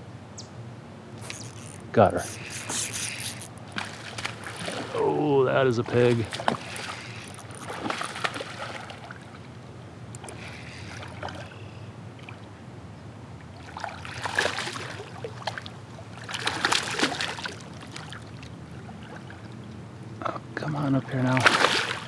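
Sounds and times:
fish thrashing and splashing water: 0:01.2 - 0:09.3, 0:13.6 - 0:19.5, 0:21.2 - 0:22.0.

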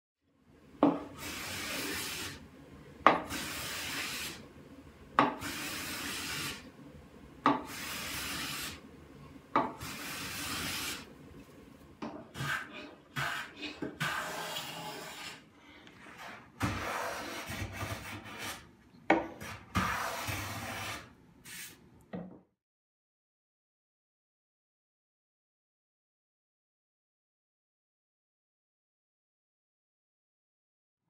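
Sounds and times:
hand plane shaving wood: 0:12.4 - 0:15.4, 0:16.0 - 0:18.6.

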